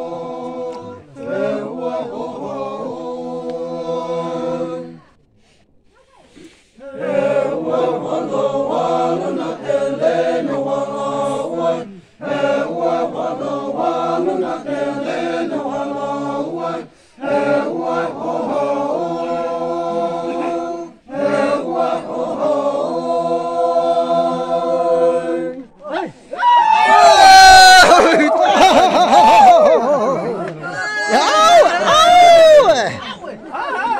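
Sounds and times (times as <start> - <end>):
group of men chanting: 0.0 - 4.9, 6.8 - 25.7.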